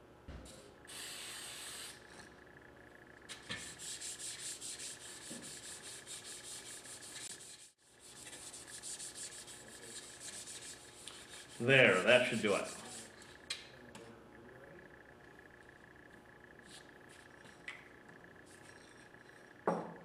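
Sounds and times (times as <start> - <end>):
aerosol spray hiss: 0.9 - 1.9
abrasive pad scrubbing: 3.7 - 13.3.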